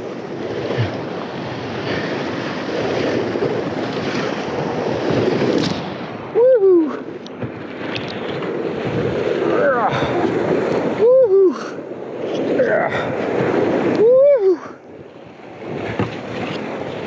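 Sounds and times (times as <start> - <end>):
paddle strokes splashing: 0.0 - 17.0
person whooping: 6.3 - 7.0, 11.0 - 11.8, 14.0 - 14.8.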